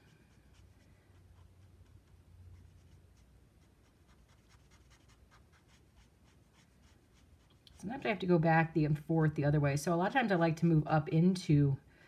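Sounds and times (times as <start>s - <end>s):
brush pen scratching on paper: 0.0s - 7.7s
low steady hum: 0.0s - 12.0s.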